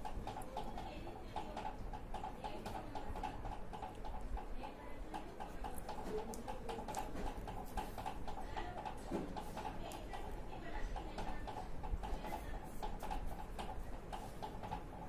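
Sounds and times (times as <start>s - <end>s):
electrical tape crackling: 0.0s - 15.0s
steady rhythmic ticking: 0.0s - 15.0s.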